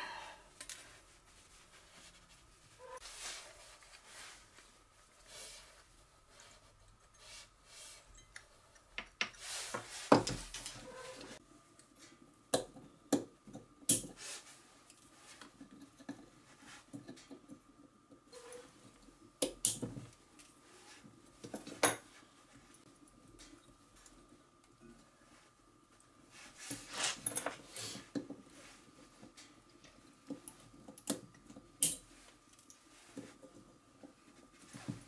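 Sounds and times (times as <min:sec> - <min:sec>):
light rubbing: 0:01.0 - 0:08.2.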